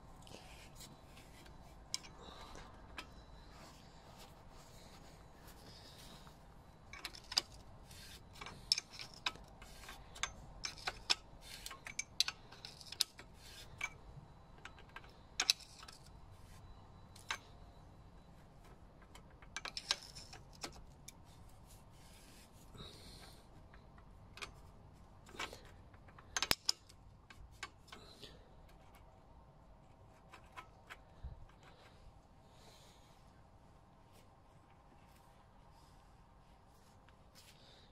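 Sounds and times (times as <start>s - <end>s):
spanner clicking on metal: 1.9s - 3.2s, 6.9s - 16.1s, 19.0s - 21.2s, 23.2s - 28.0s.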